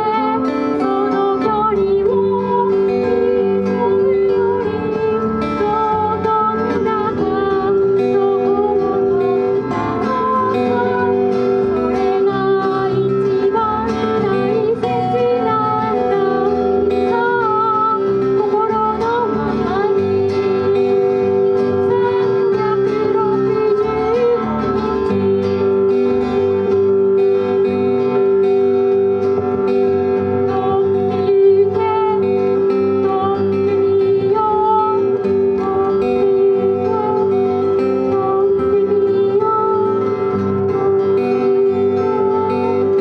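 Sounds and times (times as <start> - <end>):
acoustic guitars strummed: 0.0 - 43.0
electric bass: 0.0 - 43.0
wavering melody line: 0.0 - 43.0.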